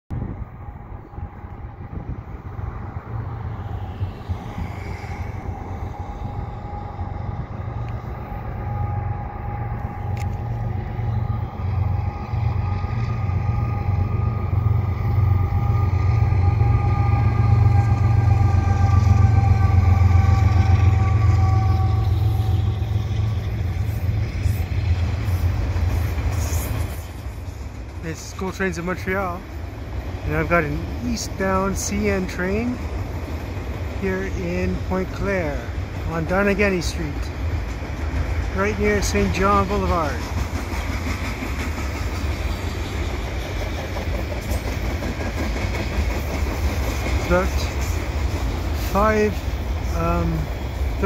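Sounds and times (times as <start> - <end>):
multi-tone whine: 0.1 - 25.5
locomotive engine rumble: 0.1 - 51.0.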